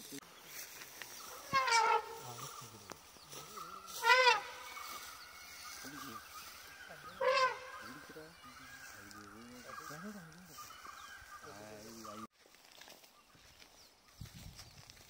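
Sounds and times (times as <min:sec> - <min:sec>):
animal calling: 0:01.2 - 0:12.3.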